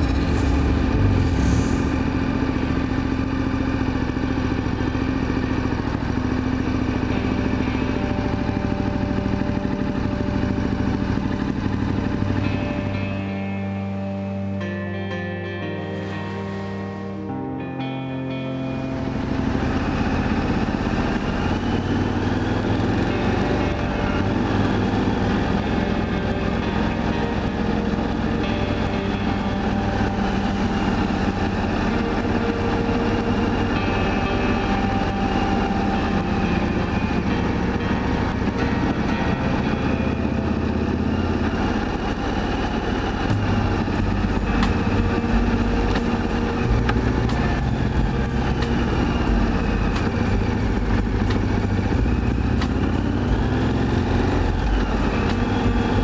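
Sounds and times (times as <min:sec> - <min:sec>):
motorcycle engine running: 0:00.0 - 0:56.0.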